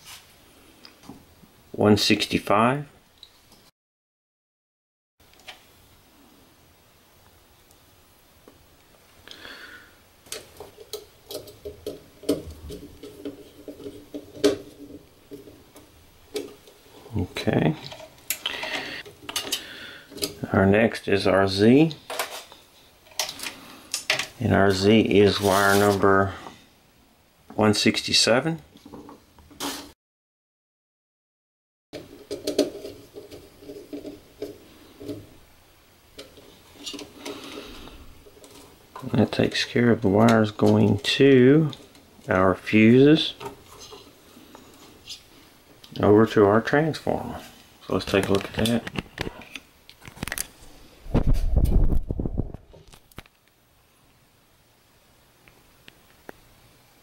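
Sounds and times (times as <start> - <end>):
wire clicking and scraping: 10.2 - 16.8, 17.8 - 20.5, 22.1 - 26.0, 32.0 - 35.3, 36.1 - 42.4, 43.3 - 46.0.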